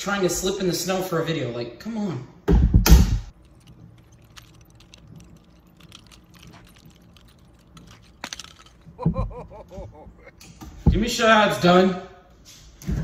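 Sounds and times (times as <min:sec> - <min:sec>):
nunchucks chain rattling: 0:03.3 - 0:10.3.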